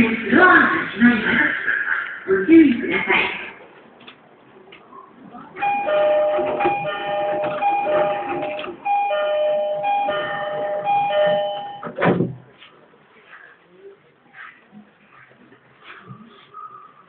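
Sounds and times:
electronic chiming tune: 0:05.6 - 0:11.9.

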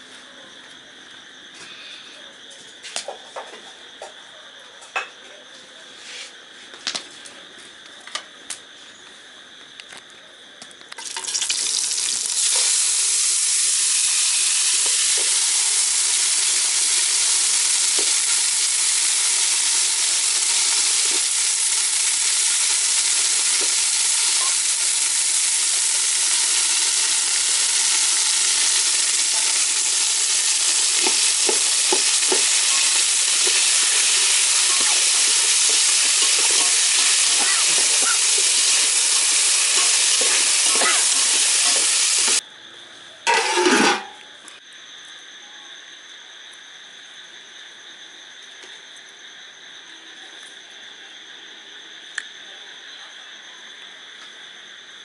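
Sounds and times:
insects chirring: 0:00.0 - 0:55.0
vegetables sizzling in a pot: 0:11.0 - 0:42.4, 0:43.3 - 0:44.2.

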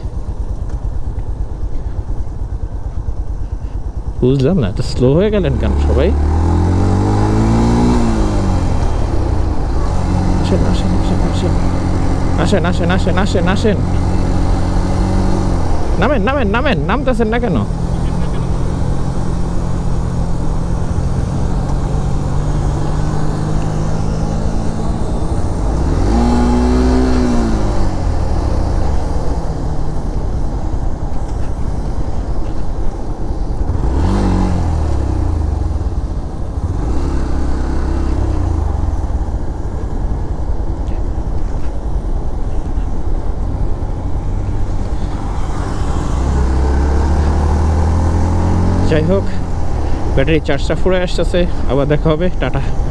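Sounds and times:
motorcycle engine running: 0:00.0 - 0:52.9.

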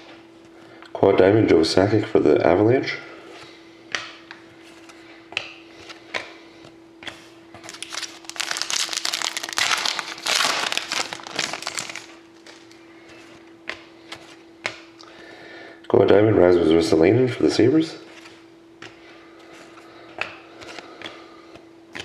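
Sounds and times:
foil wrapper tearing and crinkling: 0:07.7 - 0:12.8.

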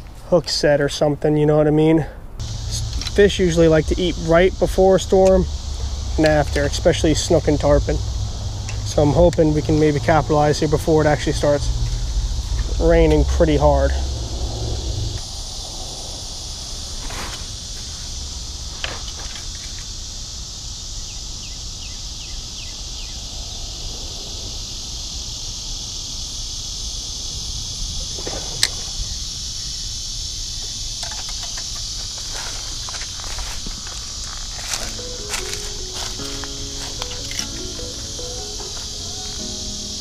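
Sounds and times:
insects chorus: 0:00.0 - 0:40.0
footsteps on dry leaves: 0:31.8 - 0:40.0.

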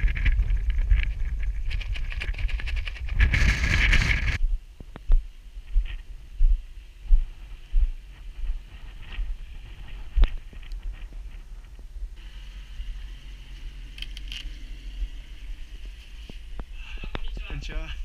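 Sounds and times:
wind buffeting microphone: 0:00.0 - 0:12.3
footsteps on gravel path: 0:05.1 - 0:11.4.

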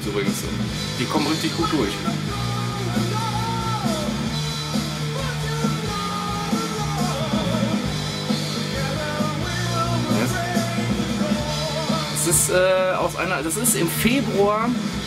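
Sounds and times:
rock band with singing: 0:00.0 - 0:15.0.

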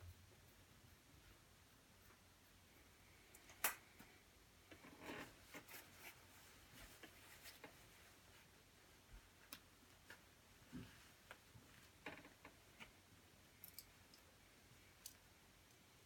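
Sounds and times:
rustling of jacket fabric: 0:04.9 - 0:12.1.

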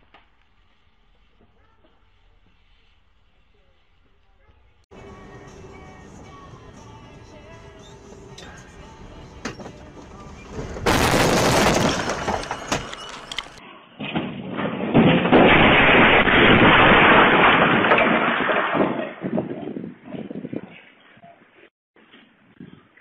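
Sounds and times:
vehicle crash impact: 0:04.9 - 0:19.4
knocks and clatter: 0:07.4 - 0:19.8
metal fencing smashed: 0:10.6 - 0:19.3.

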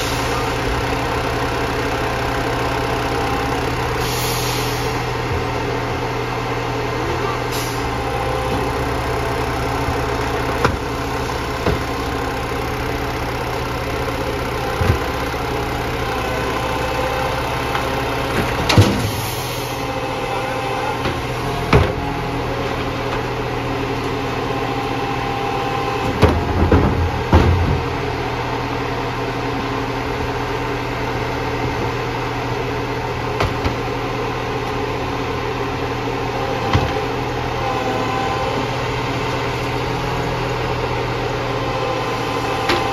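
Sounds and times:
truck engine idling: 0:00.0 - 0:42.9
knocks and clunks: 0:17.7 - 0:19.2, 0:26.0 - 0:28.0.

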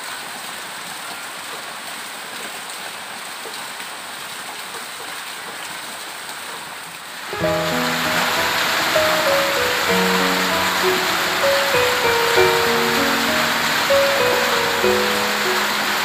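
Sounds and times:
water streaming off roof: 0:00.0 - 0:16.0
heavy rain hissing: 0:07.2 - 0:16.0.

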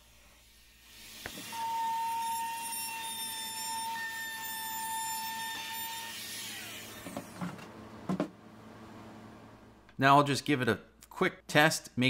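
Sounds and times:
router whining and spinning down: 0:00.9 - 0:07.6.

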